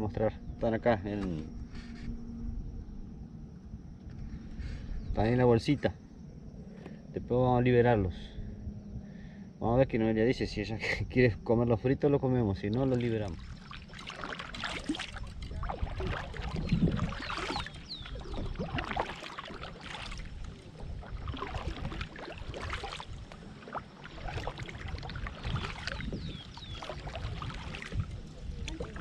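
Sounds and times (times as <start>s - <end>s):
kayak paddle dipping into water: 12.7s - 29.0s
water dripping off paddle: 12.7s - 29.0s.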